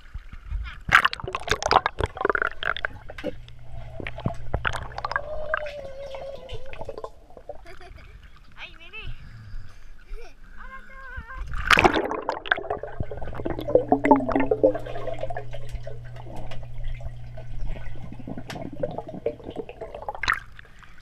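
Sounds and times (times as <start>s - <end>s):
muffled underwater sloshing and bubbling: 0.0s - 8.6s, 9.7s - 21.0s
steady low hum: 0.7s - 21.0s
water splash: 0.9s - 3.2s, 11.5s - 21.0s
small underwater clicks: 15.3s - 18.8s.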